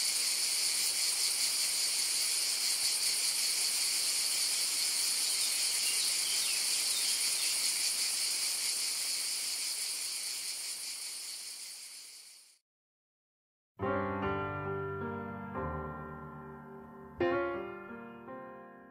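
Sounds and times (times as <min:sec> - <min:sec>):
cicadas buzzing: 0:00.0 - 0:12.6.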